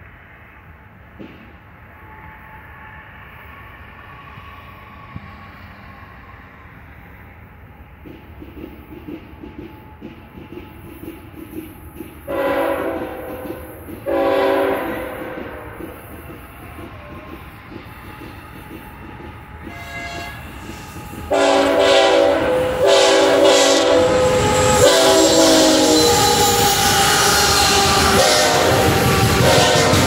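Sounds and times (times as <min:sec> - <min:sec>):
train rumbling on rails: 0:00.0 - 0:30.0
locomotive air horn blasts: 0:12.3 - 0:15.8, 0:19.6 - 0:20.5, 0:21.3 - 0:30.0.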